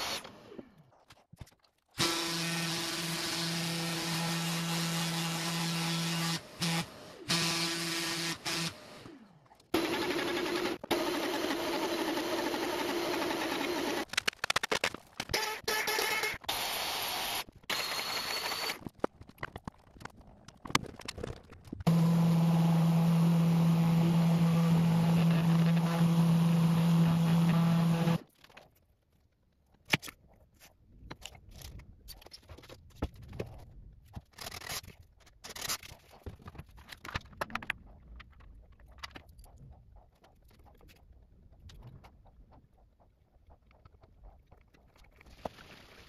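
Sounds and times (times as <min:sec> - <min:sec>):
power tool motor running: 0:02.0 - 0:14.0, 0:21.9 - 0:28.2.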